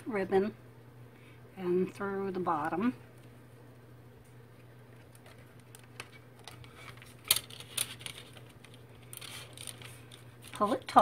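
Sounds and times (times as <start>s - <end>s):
ribbon rustling: 4.9s - 11.0s.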